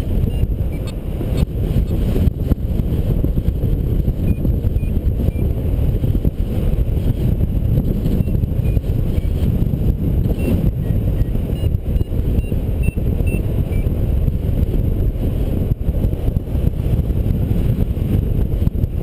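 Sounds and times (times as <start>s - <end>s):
wind buffeting microphone: 0.0s - 19.0s
faint high beeps: 10.4s - 13.9s.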